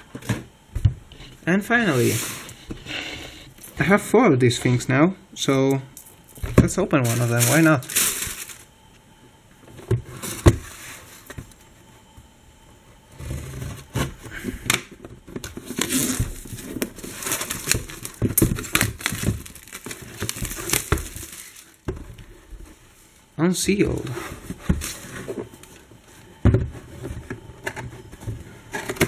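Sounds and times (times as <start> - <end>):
plastic wrap tearing and crinkling: 7.1 - 8.7, 15.6 - 21.8.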